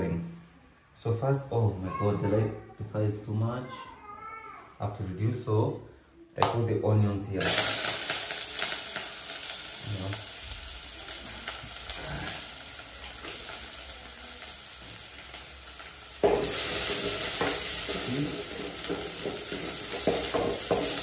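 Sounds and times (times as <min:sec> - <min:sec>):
onions sizzling in oil: 0:07.4 - 0:21.0.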